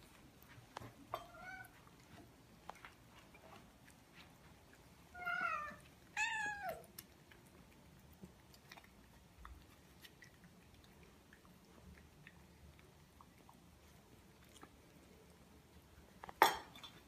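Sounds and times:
cat meowing: 5.2 - 6.9.

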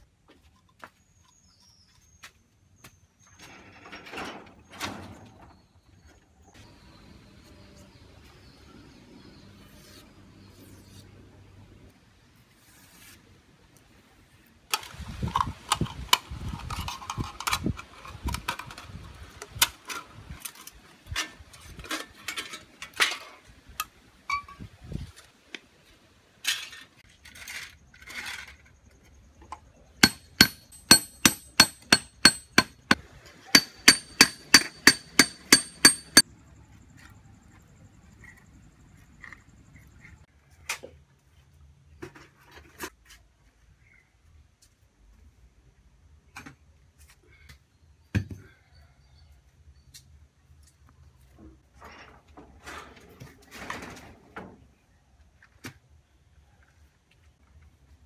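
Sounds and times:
hammer tapping on metal: 30.0 - 33.0, 33.6 - 36.2.

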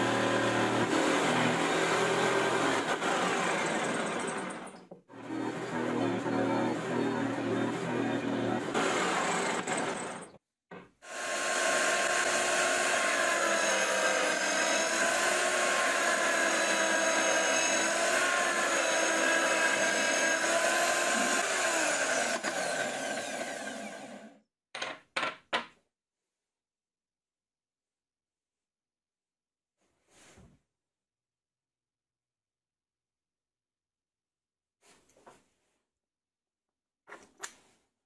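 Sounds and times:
drill press whine: 0.0 - 10.4, 11.1 - 24.4.

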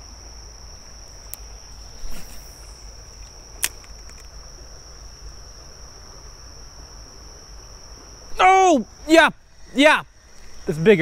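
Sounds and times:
insects droning: 0.0 - 11.0
sharp click: 3.2 - 4.3.

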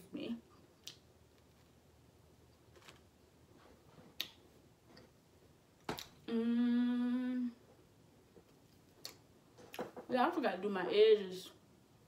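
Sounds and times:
woman humming: 6.3 - 7.6.

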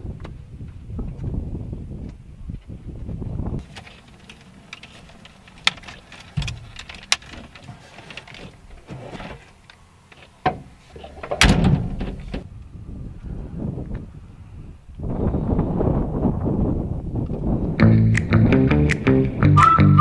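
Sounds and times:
clicks and knocks: 3.6 - 8.6
thump and rustle: 3.6 - 9.6, 10.2 - 12.5.

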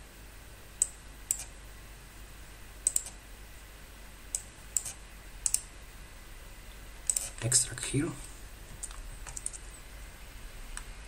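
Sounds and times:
computer mouse clicking: 0.8 - 1.5, 2.8 - 3.2, 4.3 - 5.7, 7.0 - 7.4, 8.8 - 9.7.

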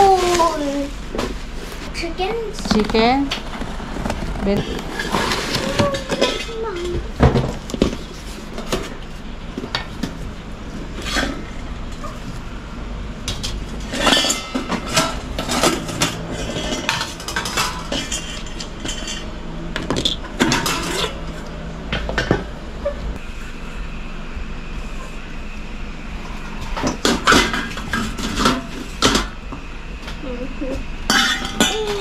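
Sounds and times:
metal pot parts clattering: 13.8 - 19.3, 20.0 - 21.4, 31.1 - 32.0.

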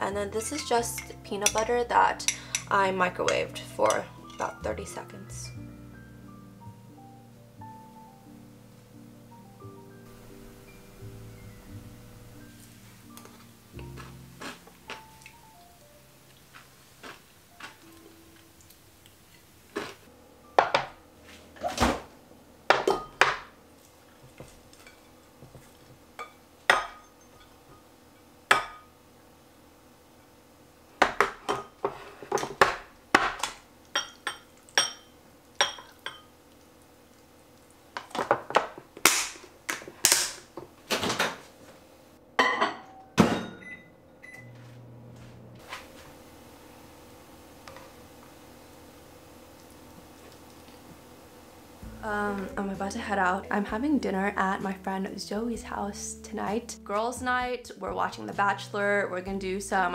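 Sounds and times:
kitchenware clattering: 0.2 - 4.7, 20.6 - 21.0, 22.7 - 23.5, 26.2 - 27.6, 31.0 - 36.3, 42.4 - 43.7.

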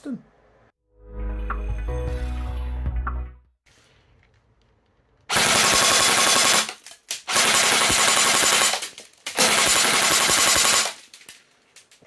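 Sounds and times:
airsoft gun firing full-auto: 5.3 - 11.0.

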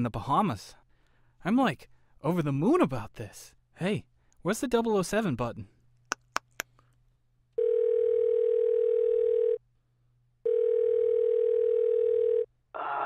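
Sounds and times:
telephone ringback tone: 7.6 - 9.6, 10.5 - 12.5.

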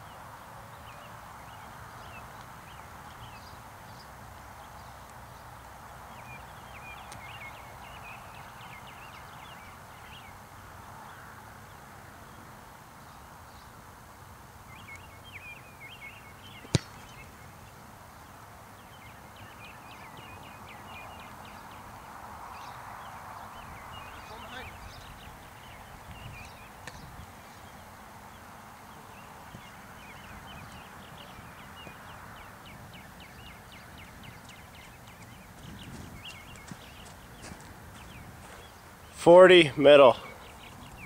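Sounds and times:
football kick thump: 16.6 - 17.2.

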